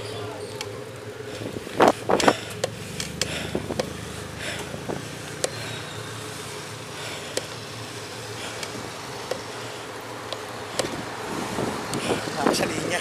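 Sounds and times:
bicycle knocks and rattles: 0:00.0 - 0:05.8, 0:10.2 - 0:11.0
road and traffic hum: 0:00.0 - 0:13.0.

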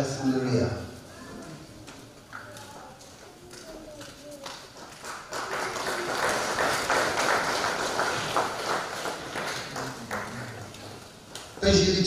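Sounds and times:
crowd applauding: 0:02.4 - 0:11.6.

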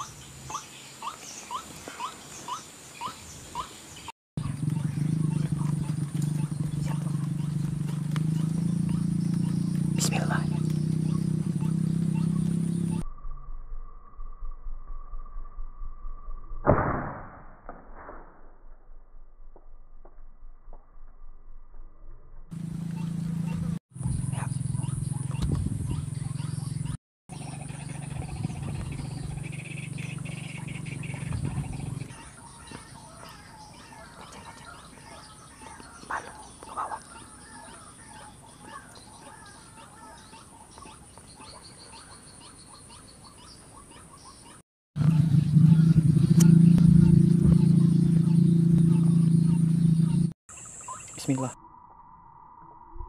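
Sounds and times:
air rifle shot: 0:16.6 - 0:18.4.

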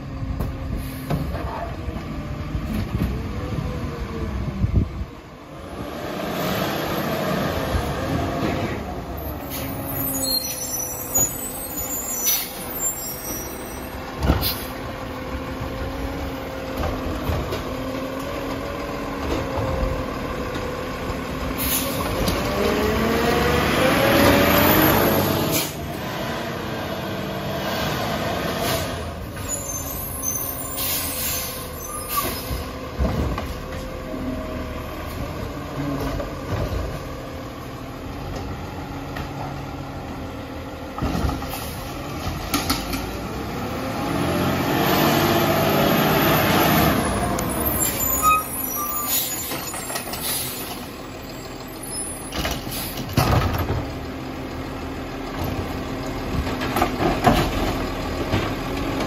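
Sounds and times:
garbage truck diesel engine: 0:00.0 - 0:59.0
air brake hiss: 0:21.6 - 0:22.0, 0:30.6 - 0:32.6, 0:50.2 - 0:50.7.

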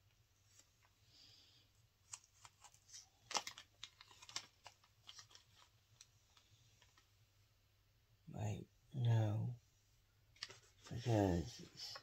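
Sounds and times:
small light clicks and rustles: 0:02.0 - 0:07.2, 0:10.3 - 0:11.0.

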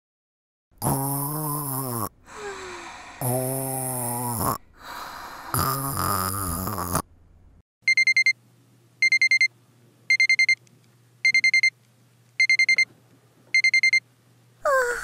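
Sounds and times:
alarm clock beeping: 0:07.9 - 0:08.3, 0:09.0 - 0:09.5, 0:10.1 - 0:10.6, 0:11.2 - 0:11.7, 0:12.4 - 0:12.8, 0:13.6 - 0:14.0.

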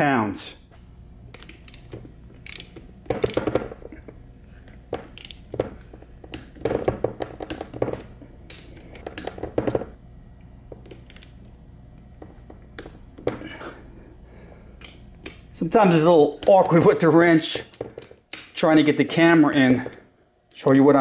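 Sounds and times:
torque wrench ratchet clicking: 0:01.3 - 0:03.5, 0:05.1 - 0:05.4, 0:11.1 - 0:11.4.

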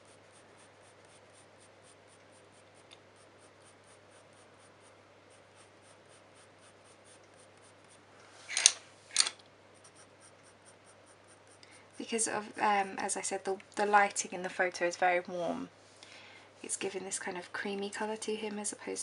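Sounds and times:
pencil shading on paper: 0:00.0 - 0:08.0, 0:09.8 - 0:13.2
scratchy pencil sounds: 0:00.0 - 0:08.0, 0:09.7 - 0:13.5.

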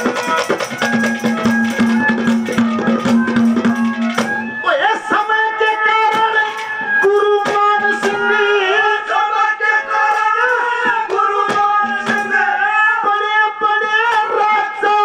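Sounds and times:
drum strokes: 0:00.0 - 0:08.6, 0:10.1 - 0:12.8
wavering melody line: 0:00.8 - 0:04.8.

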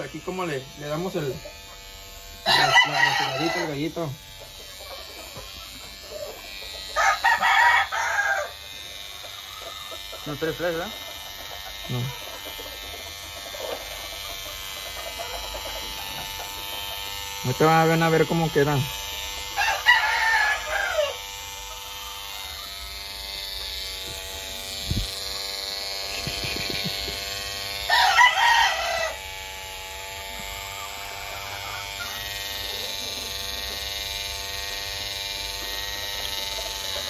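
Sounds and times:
electric clipper buzzing: 0:00.0 - 0:37.0
rooster crowing: 0:02.4 - 0:03.9, 0:07.0 - 0:08.7, 0:19.6 - 0:21.2, 0:27.9 - 0:29.3, 0:31.2 - 0:32.2.

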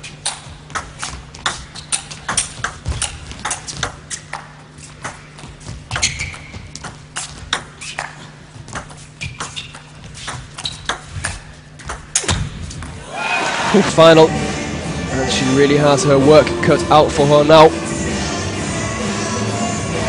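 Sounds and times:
shoe squeaks on floor: 0:00.0 - 0:12.8.

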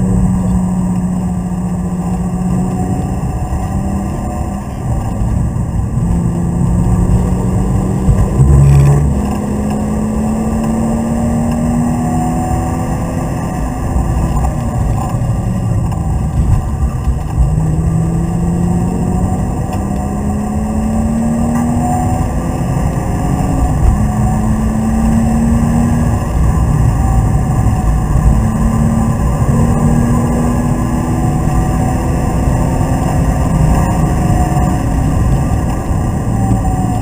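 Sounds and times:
car engine revving: 0:00.0 - 0:37.0
heavy low thump: 0:06.1 - 0:09.4.

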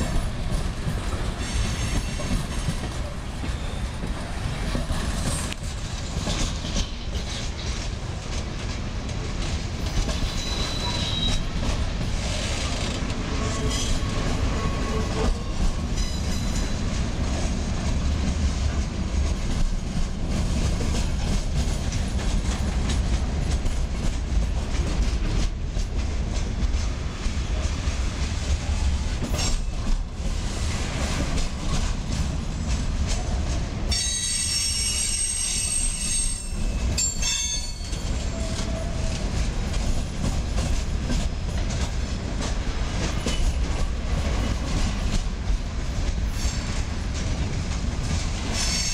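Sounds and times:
train rumble and wheel clatter: 0:00.0 - 0:48.9
metallic wheel squeal: 0:10.3 - 0:11.4, 0:34.0 - 0:38.5.

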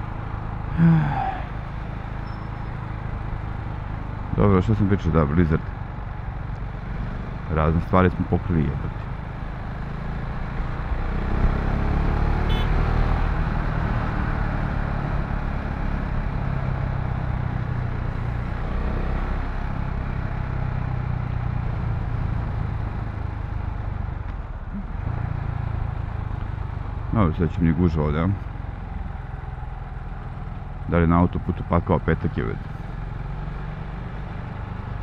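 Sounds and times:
road noise: 0:00.0 - 0:35.0
motorcycle engine running: 0:12.5 - 0:12.7.

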